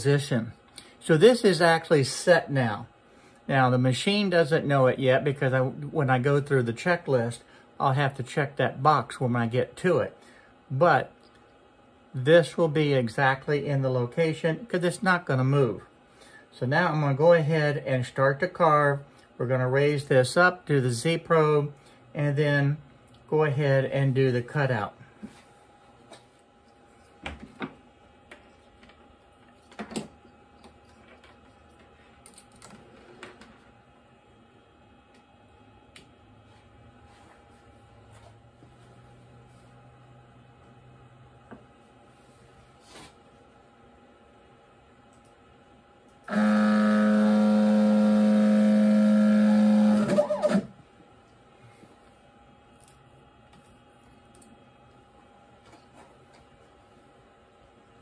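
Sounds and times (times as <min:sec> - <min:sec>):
faint steady hum: 0:00.0 - 0:58.0
stepper motors whining: 0:46.3 - 0:50.7.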